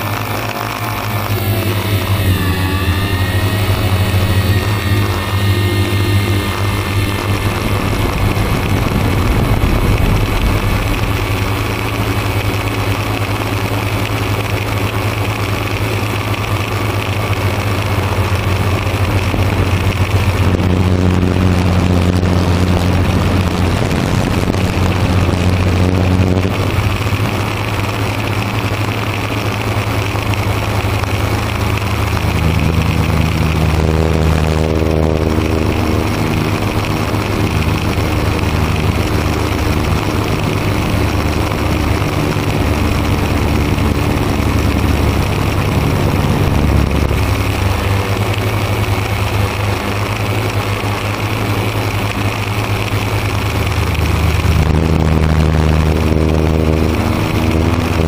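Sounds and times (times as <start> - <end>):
drone motors buzzing: 0.0 - 58.0.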